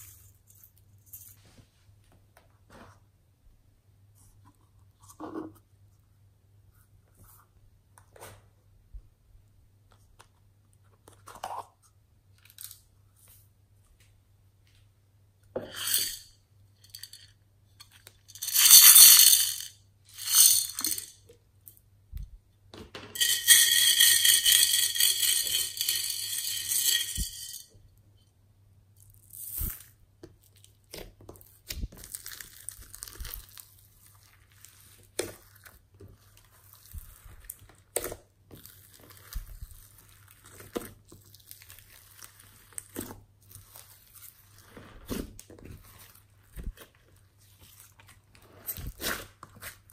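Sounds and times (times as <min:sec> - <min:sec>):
beads rattling into dish: 0:15.6 - 0:21.2, 0:23.2 - 0:27.7.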